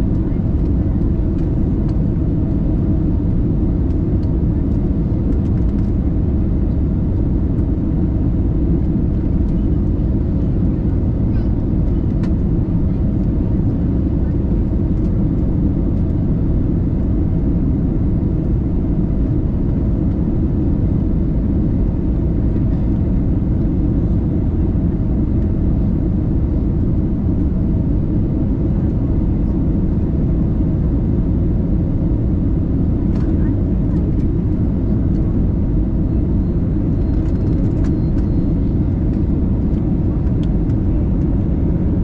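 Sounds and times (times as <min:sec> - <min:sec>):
jet engine and air rumble: 0:00.0 - 0:42.0.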